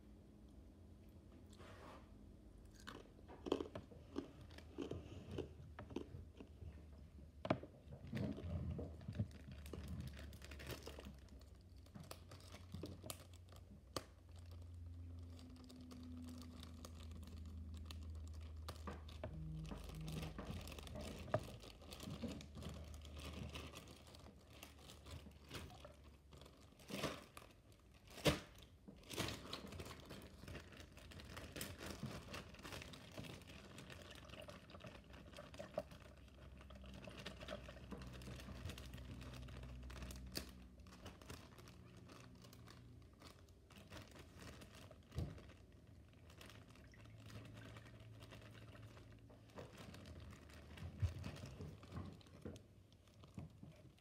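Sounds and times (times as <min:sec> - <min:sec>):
plastic bag crinkling: 0:07.8 - 0:54.0.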